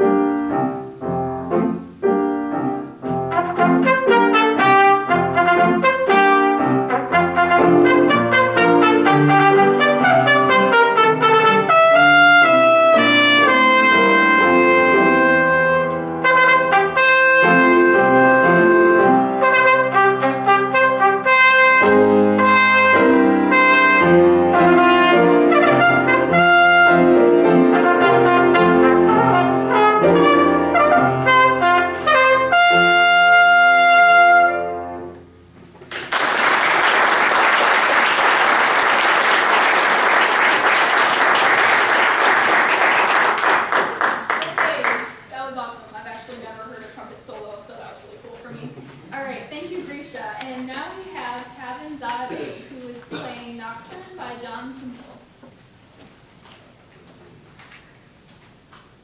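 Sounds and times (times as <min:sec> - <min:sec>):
solo trumpet melody: 0:00.0 - 0:35.5
piano accompaniment: 0:00.0 - 0:46.8
audience applauding: 0:35.9 - 0:45.3.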